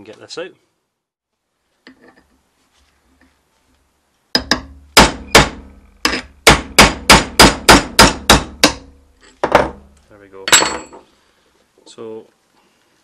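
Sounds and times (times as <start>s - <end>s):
hammer striking metal: 4.4s - 9.0s.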